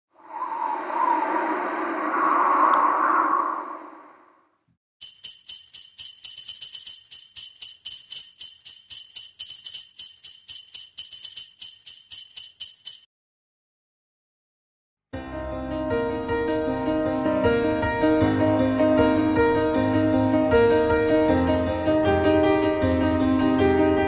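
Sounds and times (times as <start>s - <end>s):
sleigh bells shaken: 5.0s - 13.1s.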